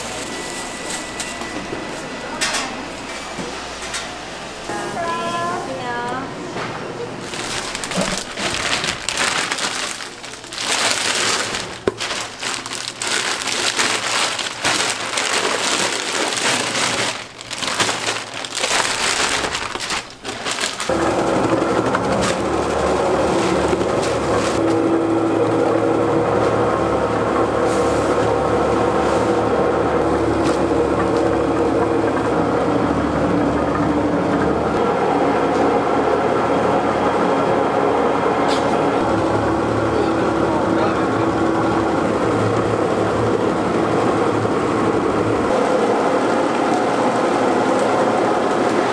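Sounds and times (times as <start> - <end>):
bowl cutter humming: 0.0 - 48.9
frozen fish paste crunching: 7.2 - 20.9.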